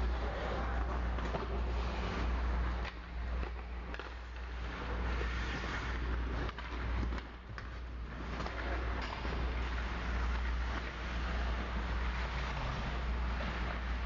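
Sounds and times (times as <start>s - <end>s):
hockey sticks and puck clacking: 0.0s - 14.0s
low building hum: 0.0s - 14.0s
skates scraping on ice: 0.0s - 14.0s.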